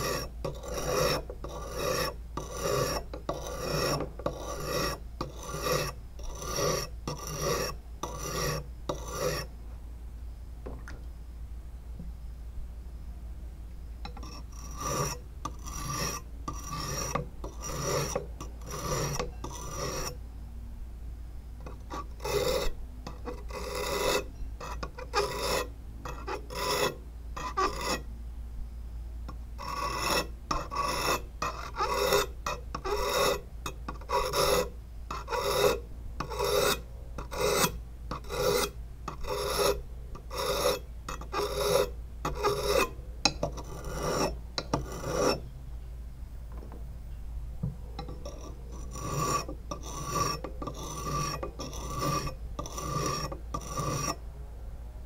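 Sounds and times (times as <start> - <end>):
sharpening stone rasping on blade: 0.0 - 9.5, 14.1 - 20.2, 21.6 - 28.0, 29.6 - 45.4, 48.0 - 54.2.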